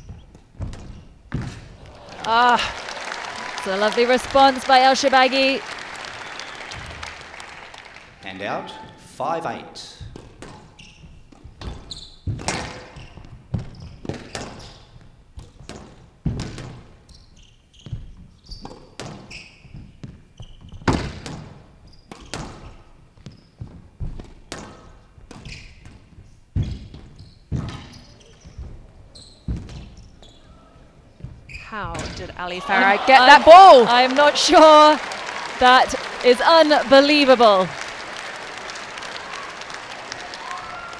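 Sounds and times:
shoe squeaks on court floor: 0:10.4 - 0:15.0, 0:17.0 - 0:21.0, 0:21.8 - 0:23.8, 0:25.3 - 0:30.6, 0:31.2 - 0:32.3.

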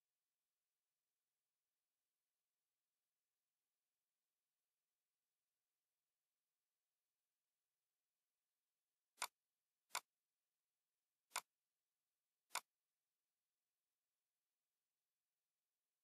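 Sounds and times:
computer mouse clicks: 0:09.2 - 0:10.1, 0:11.3 - 0:11.5, 0:12.5 - 0:12.8.

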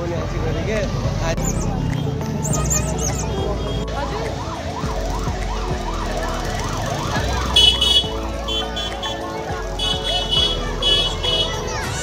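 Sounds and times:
siren wailing: 0:02.4 - 0:11.5.

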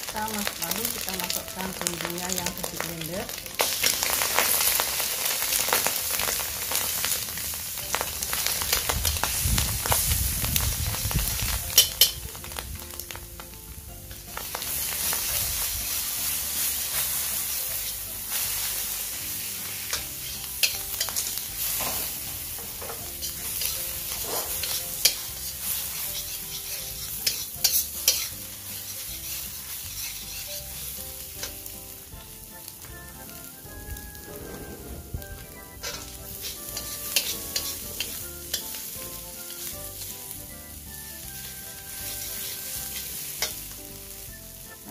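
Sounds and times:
food sizzling in oil: 0:00.0 - 0:44.9
metal spatula scraping wok: 0:14.5 - 0:31.7, 0:34.0 - 0:40.3, 0:41.4 - 0:43.7.

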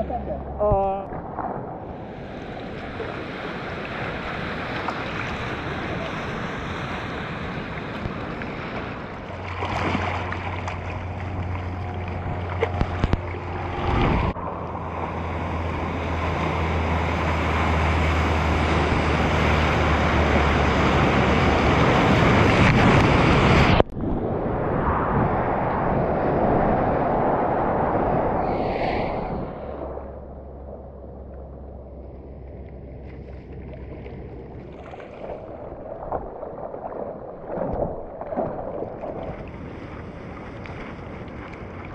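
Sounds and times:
low steady hum: 0:00.0 - 0:03.2, 0:09.1 - 0:23.0, 0:23.7 - 0:41.9
wind buffeting microphone: 0:00.0 - 0:33.0
ocean water splashing: 0:00.0 - 0:41.9.

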